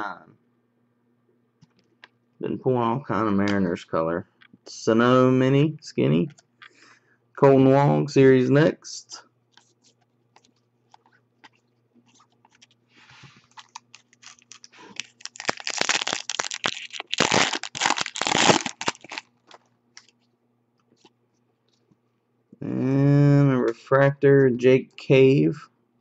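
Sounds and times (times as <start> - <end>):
cards being handled: 9.5 - 21.9
foil wrapper crackling and crinkling: 12.2 - 20.2.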